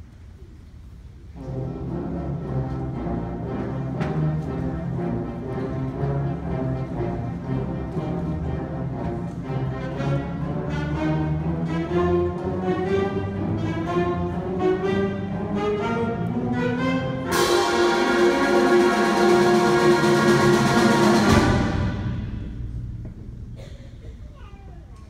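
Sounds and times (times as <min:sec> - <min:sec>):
concert band playing slow chords: 0:17.2 - 0:24.1
cymbal crash: 0:17.3 - 0:23.9.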